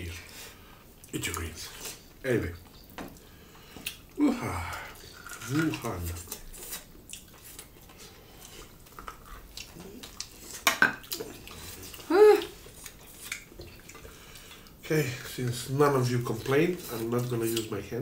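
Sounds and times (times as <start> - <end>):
person humming mm: 4.2 - 4.9, 12.0 - 12.6.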